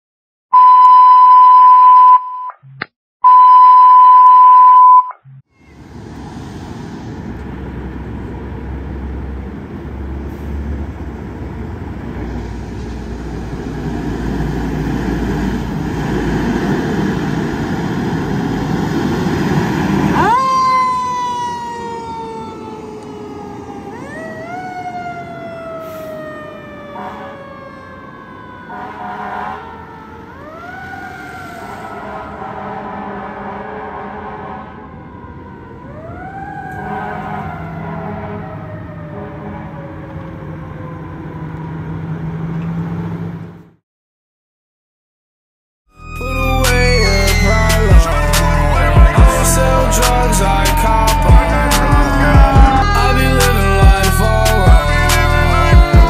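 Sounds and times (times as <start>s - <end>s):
loud electronic beeps: 0.6s - 5.4s, 46.0s - 56.0s
fire engine engine: 5.6s - 43.8s, 46.0s - 56.0s
siren rising and falling: 17.4s - 32.9s, 34.8s - 42.3s, 45.9s - 56.0s.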